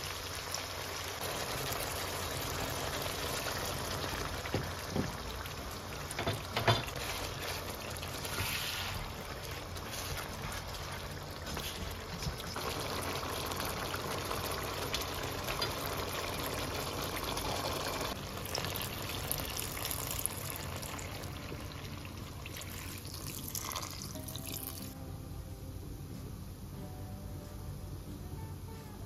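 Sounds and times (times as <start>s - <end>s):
chicken wings sizzling in a wok: 0.0s - 25.0s
soda fizzing in hot pan: 0.0s - 25.0s
spatula scraping a wok: 6.8s - 12.0s.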